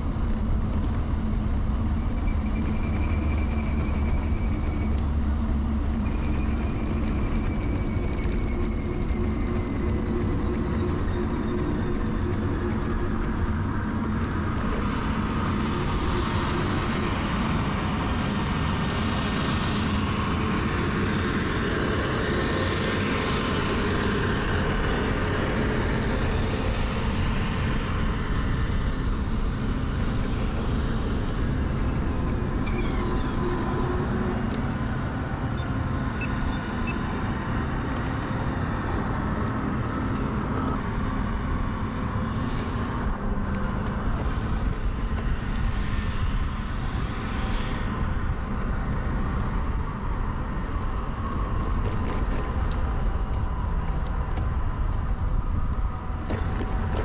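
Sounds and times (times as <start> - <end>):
bicycle tyres rolling: 0.0 - 21.2, 47.7 - 57.0
wind rushing on microphone: 0.0 - 57.0.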